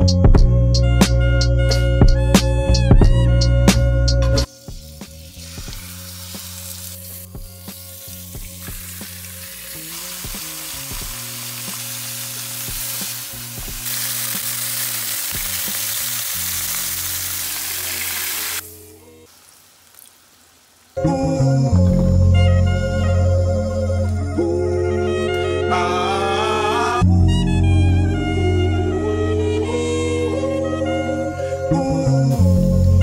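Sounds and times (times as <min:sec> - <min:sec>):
meat frying in hot oil: 0:04.5 - 0:18.7.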